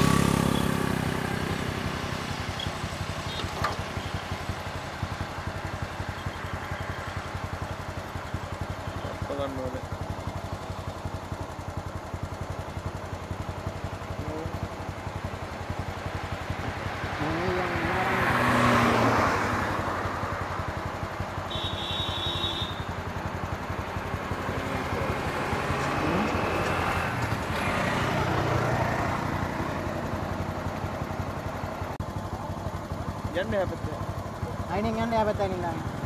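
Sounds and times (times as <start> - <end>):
cars passing: 0.0 - 7.6, 15.7 - 22.4, 23.0 - 32.2
motorcycles passing: 0.0 - 36.0.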